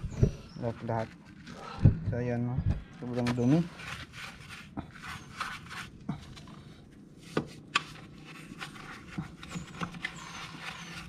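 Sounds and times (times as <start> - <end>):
brush scrubbing: 3.0 - 6.4, 7.9 - 11.0.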